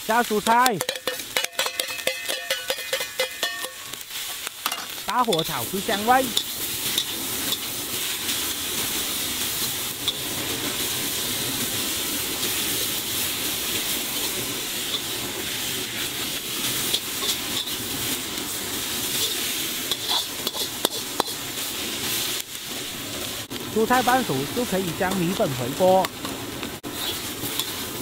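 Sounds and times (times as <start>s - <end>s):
vegetables sizzling in a wok: 0.0s - 28.0s
spatula clinking on wok: 0.8s - 4.0s.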